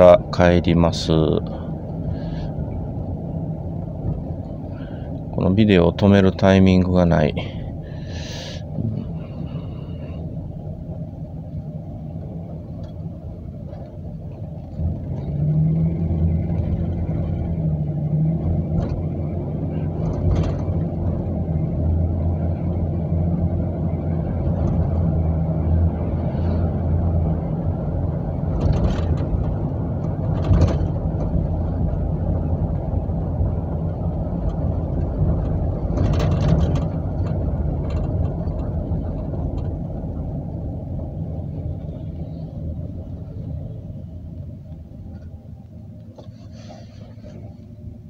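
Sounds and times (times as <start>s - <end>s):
van engine and tyre drone: 0.0s - 48.0s
vehicle bumps: 18.4s - 21.3s, 28.4s - 32.0s, 34.4s - 40.3s.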